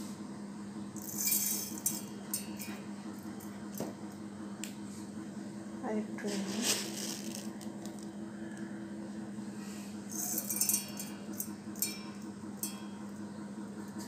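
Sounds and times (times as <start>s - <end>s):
steady low hum: 0.0s - 14.0s
grains rattling in steel bowl: 1.0s - 2.7s, 6.3s - 8.1s, 10.1s - 12.1s.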